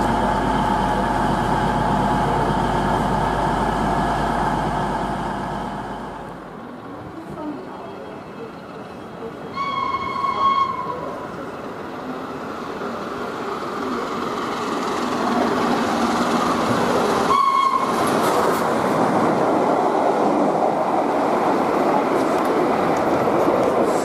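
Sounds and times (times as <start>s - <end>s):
steam locomotive working hard: 0.0s - 6.6s, 9.2s - 24.0s
steam locomotive whistle: 9.5s - 11.1s, 17.3s - 18.0s.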